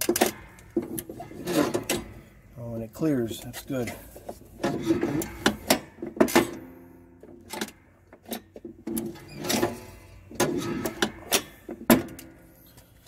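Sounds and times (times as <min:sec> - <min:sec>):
metal clicks and clanks: 0:00.0 - 0:02.5, 0:03.3 - 0:13.0.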